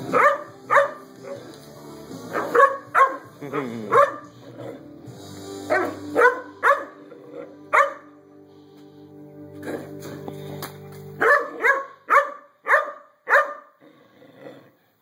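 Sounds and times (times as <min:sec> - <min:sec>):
puppy barking: 0:00.1 - 0:01.4, 0:02.3 - 0:04.3, 0:05.7 - 0:07.0, 0:07.7 - 0:08.1, 0:11.2 - 0:13.8.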